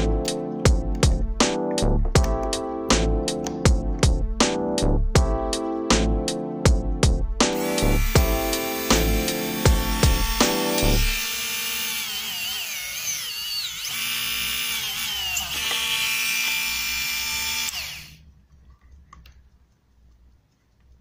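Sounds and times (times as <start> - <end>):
rotary engraver motor whining: 7.6 - 18.2.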